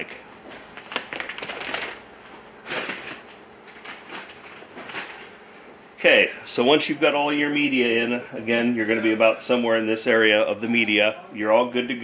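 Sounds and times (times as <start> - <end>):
plastic bag crinkling: 0.7 - 5.4.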